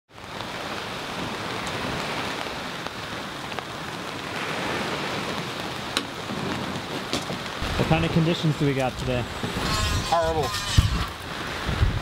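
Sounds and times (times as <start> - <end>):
steady rain falling: 0.1 - 12.0
raindrop ticks: 1.2 - 4.2.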